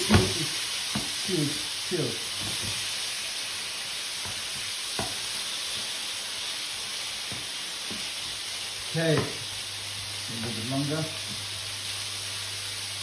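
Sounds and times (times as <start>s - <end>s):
meat sizzling in frying pan: 0.0s - 13.0s
spatula tapping pan: 0.9s - 1.2s, 4.2s - 5.9s.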